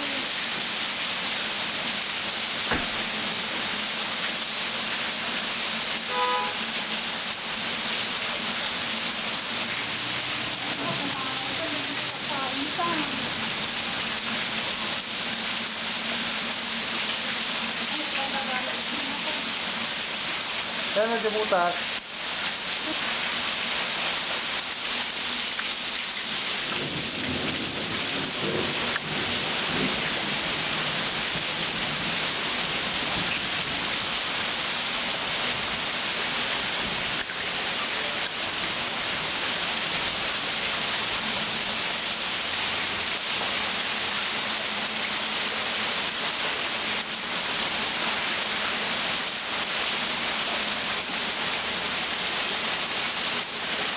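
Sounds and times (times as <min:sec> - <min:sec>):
heavy rain on water: 0:00.0 - 0:53.9.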